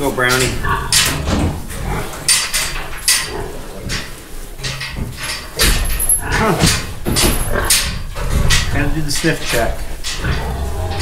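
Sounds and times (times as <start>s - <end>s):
pig grunting: 0.3s - 2.5s, 3.2s - 4.6s, 6.0s - 9.0s, 9.6s - 11.0s
pig snuffling and snorting: 0.4s - 11.0s.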